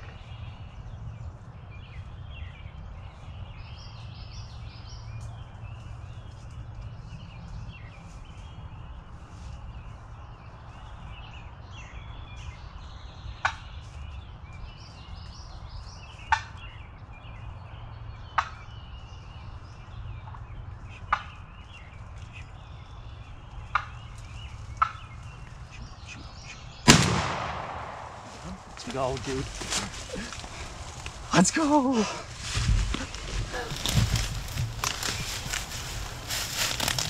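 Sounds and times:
faint songbirds: 0.0s - 37.0s
shotgun shot with echo: 26.9s - 28.3s.

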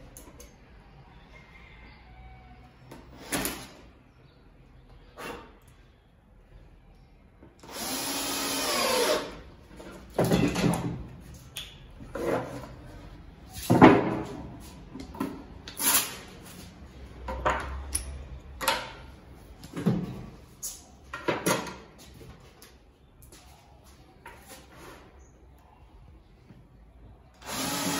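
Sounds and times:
cordless drill driving a screw: 7.6s - 9.4s, 27.4s - 27.9s
knocks and clatters of handling: 9.7s - 12.9s, 21.1s - 23.5s.

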